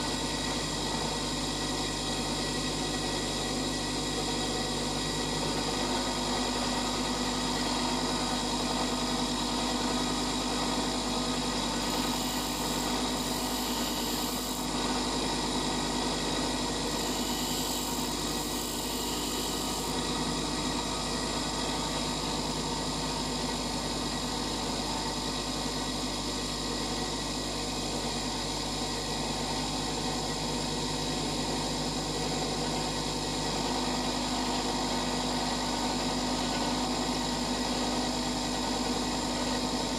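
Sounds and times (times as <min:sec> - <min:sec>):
bench grinder motor hum: 0:00.0 - 0:39.9
drill bit grinding hiss: 0:09.5 - 0:22.5.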